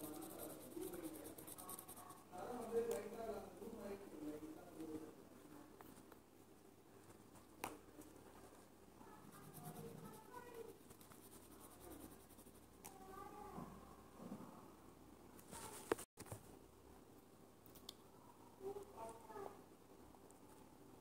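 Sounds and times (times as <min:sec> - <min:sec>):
marker scratching on glass: 0:00.0 - 0:03.1, 0:09.2 - 0:12.8.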